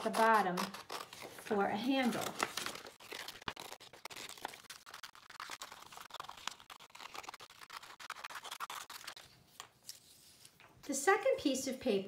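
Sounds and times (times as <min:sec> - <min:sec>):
scissors snipping paper: 0:00.0 - 0:09.3
paper rustling: 0:00.1 - 0:10.7.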